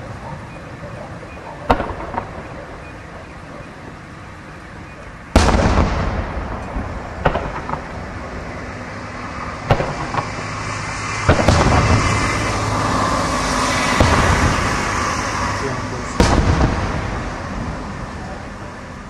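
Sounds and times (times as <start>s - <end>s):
low rumbling echo: 0.9s - 19.0s
firework shells bursting: 1.6s - 2.9s, 5.3s - 8.5s, 9.5s - 12.7s, 13.4s - 17.6s.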